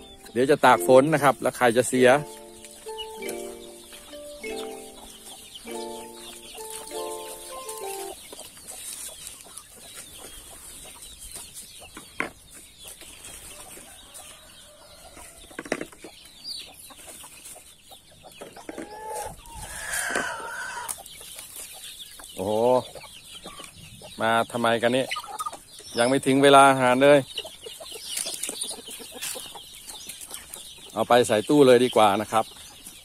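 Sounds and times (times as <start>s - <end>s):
background music: 0.0s - 8.2s
chickens clucking: 0.0s - 33.0s.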